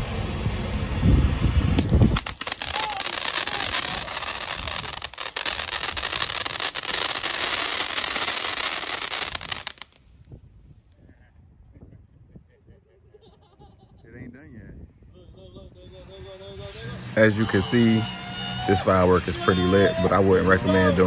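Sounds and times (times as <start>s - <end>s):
firework hissing and crackling: 0.0s - 10.4s
wind buffeting microphone: 0.3s - 16.8s.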